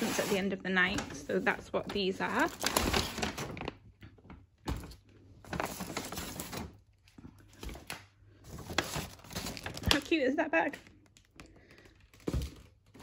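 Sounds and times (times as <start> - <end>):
paper bags rustling: 0.0 - 10.4.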